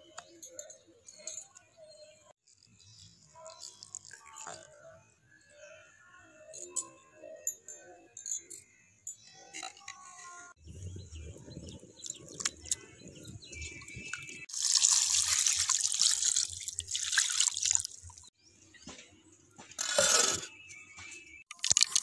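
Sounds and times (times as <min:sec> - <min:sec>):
water pouring and splashing on meat: 0:14.5 - 0:18.3, 0:21.5 - 0:22.0.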